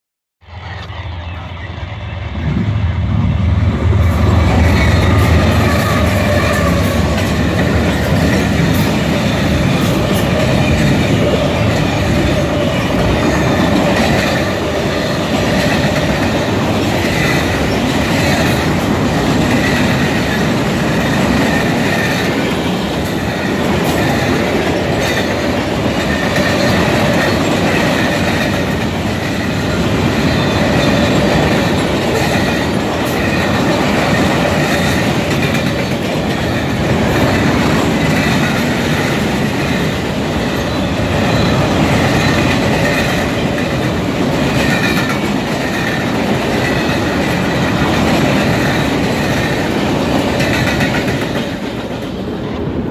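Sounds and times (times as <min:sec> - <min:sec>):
diesel locomotive rumble: 0:00.4 - 0:52.9
train wheels squealing: 0:04.1 - 0:43.8
train wheels clacking over rail joints: 0:04.1 - 0:52.3.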